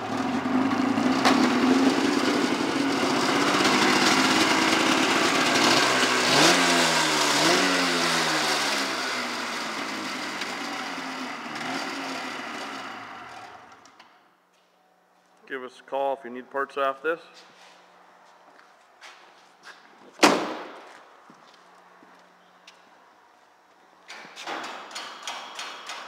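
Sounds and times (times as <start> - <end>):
snowmobile engine running and revving: 0.0 - 13.4.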